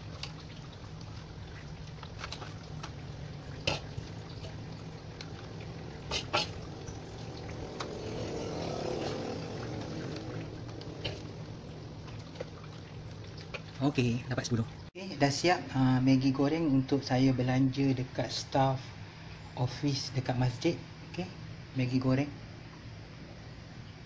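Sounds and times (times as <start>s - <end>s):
low background hum: 0.0s - 24.0s.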